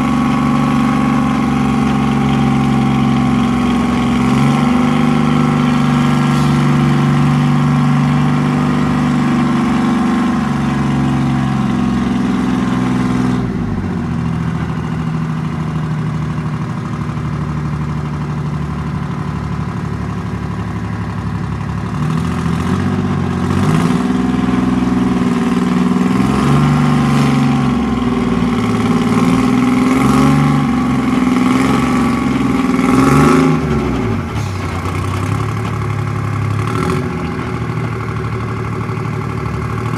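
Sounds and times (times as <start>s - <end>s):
tracked vehicle engine revving: 0.0s - 15.0s, 21.8s - 39.9s
clatter: 14.3s - 39.9s.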